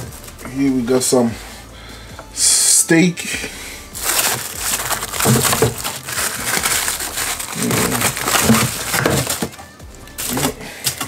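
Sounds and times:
plastic bags crinkling: 0:04.0 - 0:09.6, 0:10.2 - 0:11.0.

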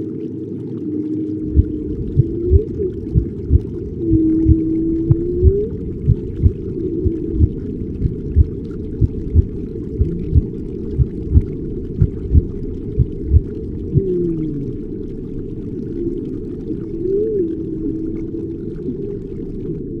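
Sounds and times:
dull ambient wash: 0:00.0 - 0:20.0
low heartbeat-like thumps: 0:01.5 - 0:14.1
falling moan-like calls: 0:13.9 - 0:14.9.

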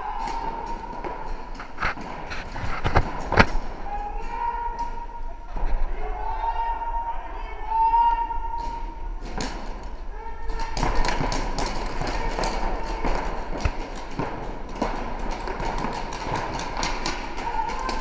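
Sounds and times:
paintball markers firing: 0:10.5 - 0:18.0.

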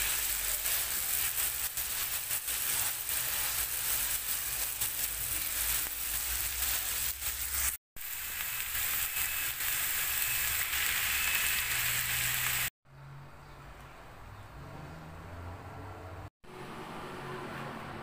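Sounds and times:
meat and vegetables sizzling: 0:00.0 - 0:12.7.

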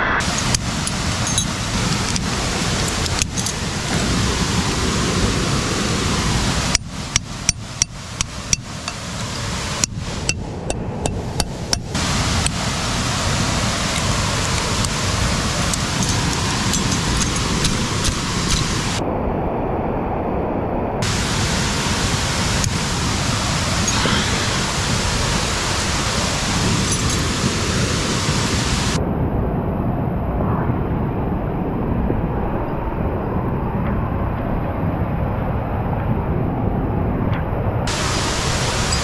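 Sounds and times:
waterfall rushing: 0:00.0 - 0:19.0, 0:21.0 - 0:29.0, 0:37.9 - 0:39.0.

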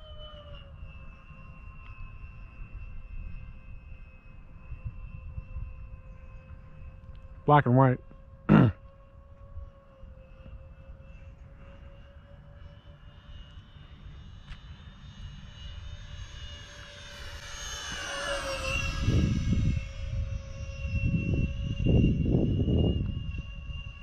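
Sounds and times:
model jet electric fans whining: 0:00.0 - 0:24.0
wind buffeting microphone: 0:17.2 - 0:24.0.

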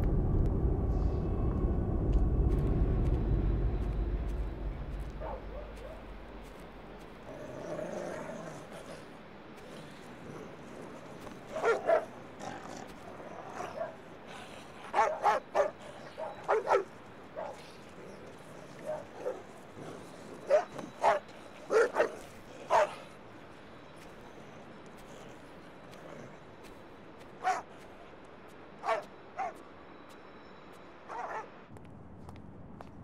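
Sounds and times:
dog barking: 0:11.5 - 0:12.1, 0:14.9 - 0:17.6, 0:20.5 - 0:23.0, 0:27.4 - 0:27.6, 0:28.8 - 0:29.6, 0:31.1 - 0:31.5.

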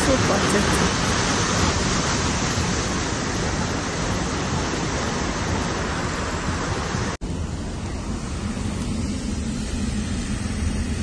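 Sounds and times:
floodwater rushing: 0:00.0 - 0:07.2
moving car noise: 0:00.0 - 0:11.0.

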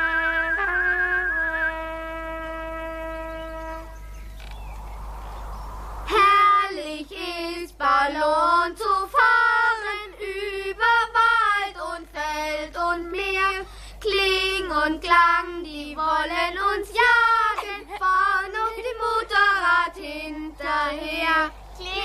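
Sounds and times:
child singing: 0:06.1 - 0:22.0.

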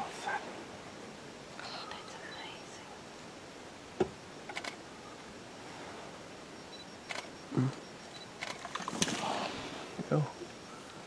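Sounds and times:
sharp clicks: 0:04.5 - 0:04.8, 0:07.0 - 0:07.3, 0:08.2 - 0:09.2
brief rustle: 0:08.4 - 0:09.5.

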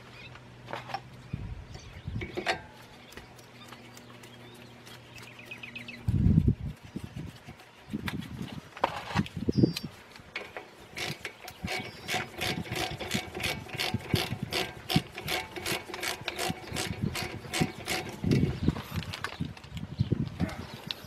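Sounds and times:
ratchet wrench clicking: 0:11.0 - 0:18.5.

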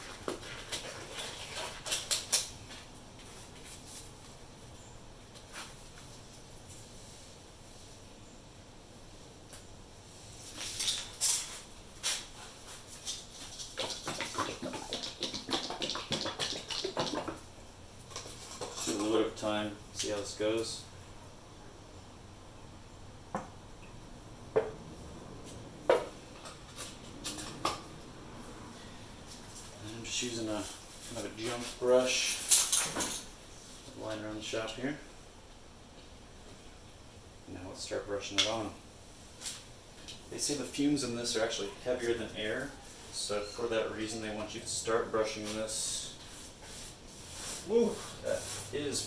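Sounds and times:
metal can knocking on concrete: 0:13.8 - 0:17.4.

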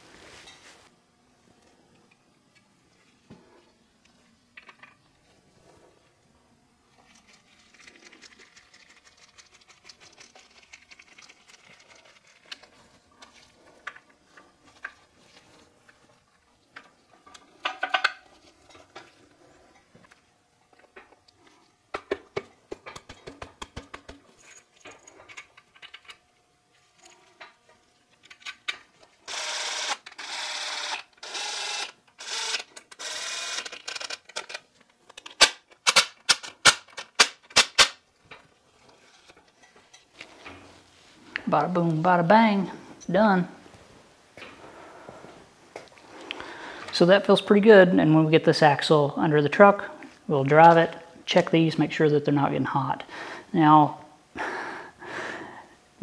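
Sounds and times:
metal parts clicking and clinking: 0:24.2 - 0:26.2, 0:28.1 - 0:28.9, 0:32.6 - 0:37.9
cordless drill running: 0:29.2 - 0:34.0.

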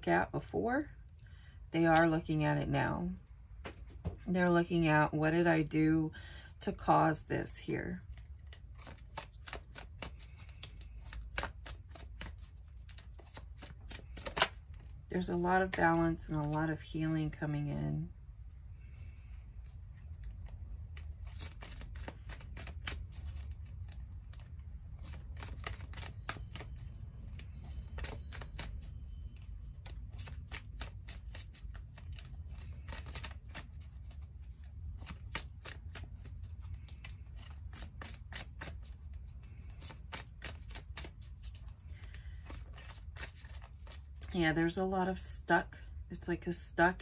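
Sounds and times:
cards shuffled by hand: 0:08.0 - 0:16.6, 0:19.2 - 0:44.4.

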